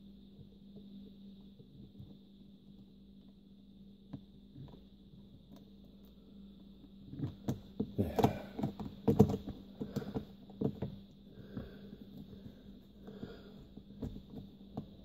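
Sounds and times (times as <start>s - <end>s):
clicks and plastic rattles: 7.2s - 11.0s.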